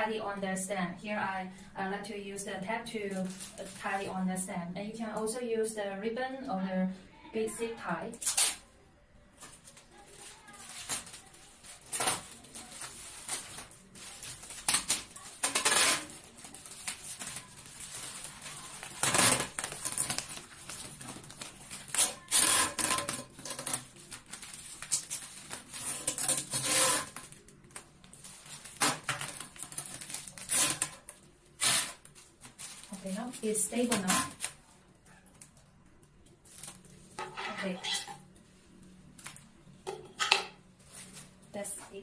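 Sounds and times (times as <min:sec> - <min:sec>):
plastic wrap crinkling: 0:03.0 - 0:04.2, 0:09.4 - 0:39.6, 0:40.7 - 0:41.7
tape ripping off roll: 0:14.4 - 0:27.4, 0:28.6 - 0:32.7.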